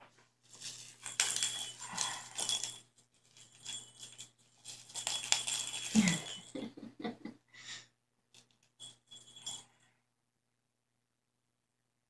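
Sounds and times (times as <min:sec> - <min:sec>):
bell toy jingling: 0:00.5 - 0:06.7, 0:08.8 - 0:09.8.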